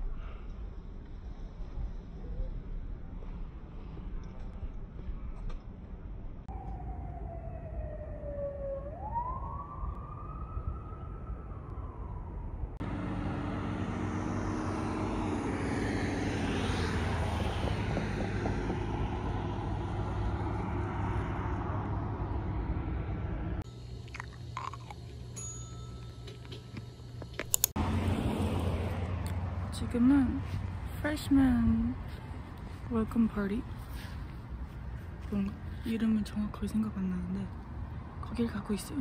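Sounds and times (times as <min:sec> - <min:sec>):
street traffic noise: 0:00.0 - 0:39.0
siren-like wail: 0:06.5 - 0:23.6.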